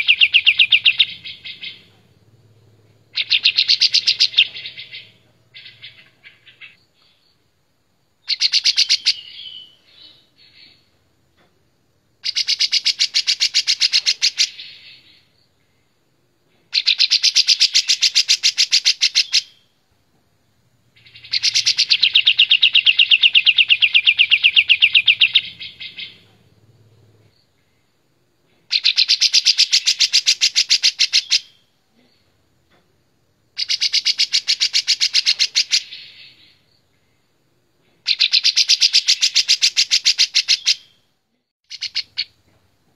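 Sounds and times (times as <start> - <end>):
bulbul singing: 0.0 - 2.0, 3.1 - 7.2, 21.0 - 26.4, 41.7 - 42.4.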